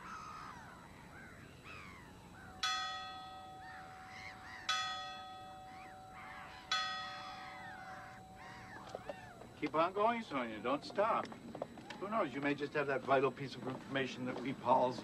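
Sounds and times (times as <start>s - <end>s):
birds calling: 0.0s - 15.0s
church bell ringing: 2.6s - 10.4s.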